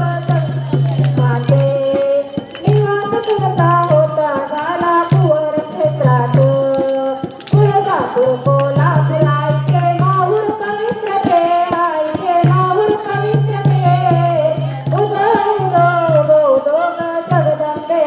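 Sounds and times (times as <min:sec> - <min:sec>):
jingling hand percussion: 0:00.0 - 0:18.0
woman singing through loudspeaker: 0:00.0 - 0:18.0.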